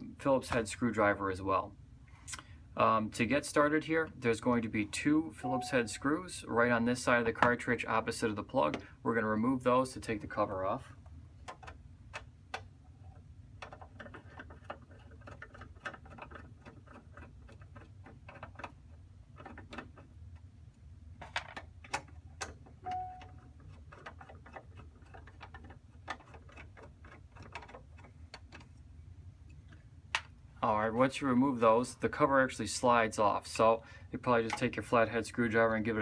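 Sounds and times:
low steady hum: 0:00.0 - 0:36.0.

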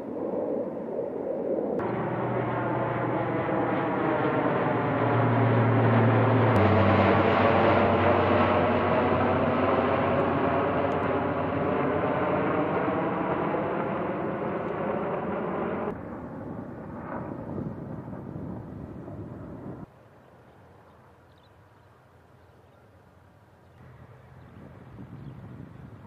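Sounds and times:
turboprop engines droning overhead: 0:00.0 - 0:26.0
rushing outdoor noise: 0:01.8 - 0:12.6.

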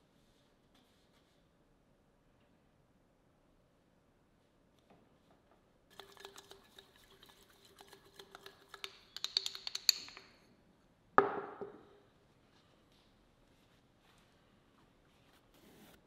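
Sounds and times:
painting tools tapping palette: 0:07.8 - 0:10.5.

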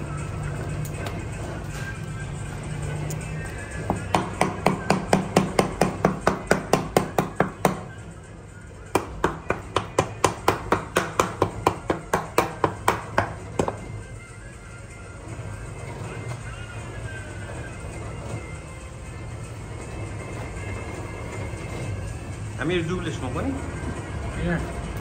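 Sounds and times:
rapid even knocking: 0:03.9 - 0:07.9.

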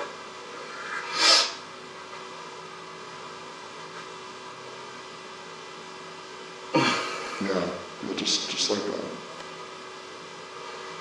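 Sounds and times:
electrical hum with hiss: 0:00.0 - 0:11.0.

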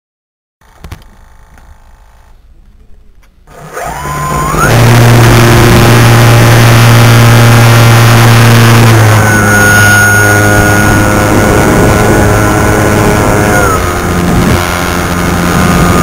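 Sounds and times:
model aircraft motor whining: 0:03.5 - 0:16.0.

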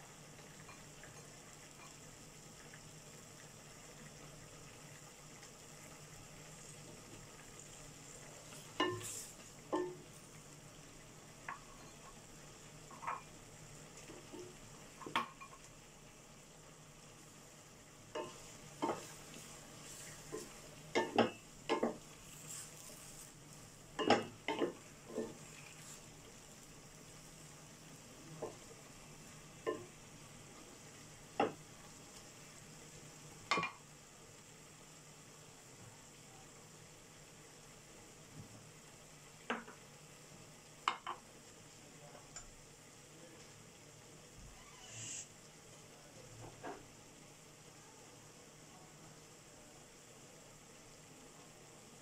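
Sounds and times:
faint steady hiss: 0:00.0 - 0:52.0
brief hiss: 0:44.6 - 0:45.4.

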